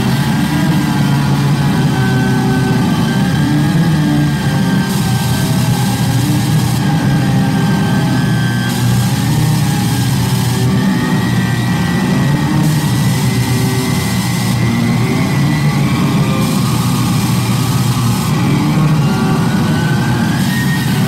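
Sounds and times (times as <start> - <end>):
electronic noise music: 0.0 - 21.0
high whine: 0.0 - 21.0.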